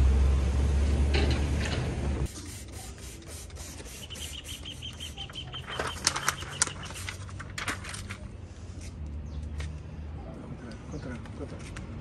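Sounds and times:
paper and vinyl crinkling: 3.6 - 9.0
bird chirping: 3.9 - 7.1.

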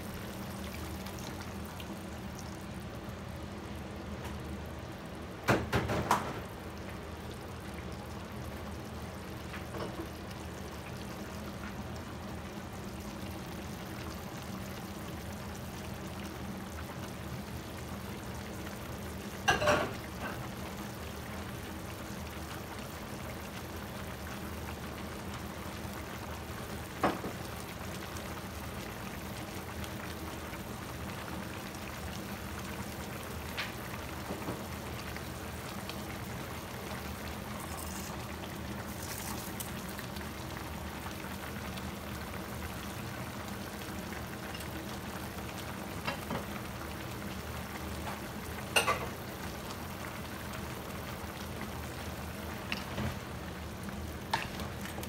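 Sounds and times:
meat simmering in a frying pan: 0.0 - 55.0.

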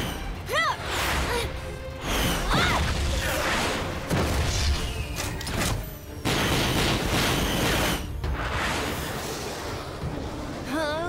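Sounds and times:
cartoon action music: 0.0 - 8.8.

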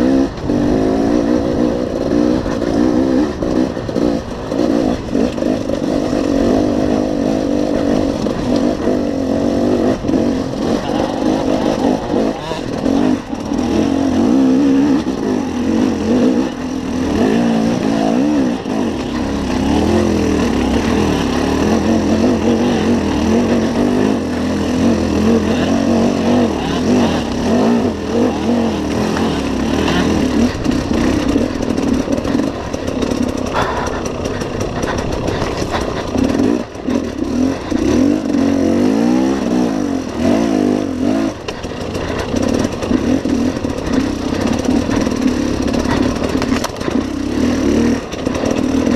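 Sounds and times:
motorcycle engine revving: 0.0 - 48.9.

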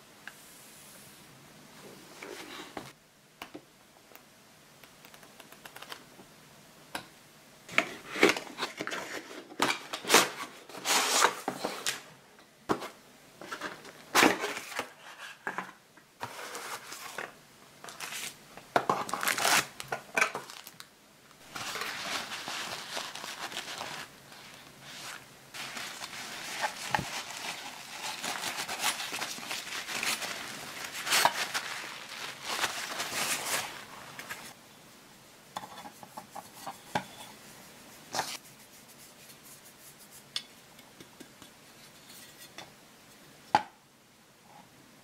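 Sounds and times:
paper towel rubbing and rustling: 21.4 - 34.6.

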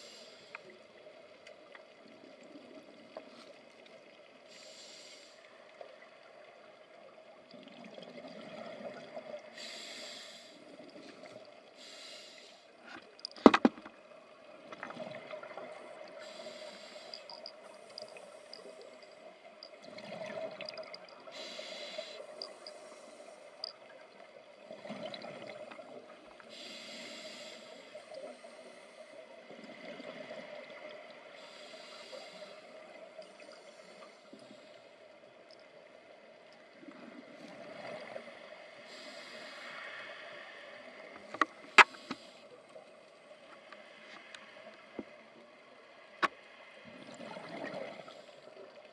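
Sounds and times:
regulator hissing inhalation: 4.5 - 5.4, 9.6 - 10.6, 11.8 - 12.7, 16.2 - 19.0, 21.2 - 23.7, 26.5 - 29.1, 38.9 - 40.0
exhaled air bubbles: 19.6 - 21.4, 24.6 - 26.2, 46.8 - 48.3.

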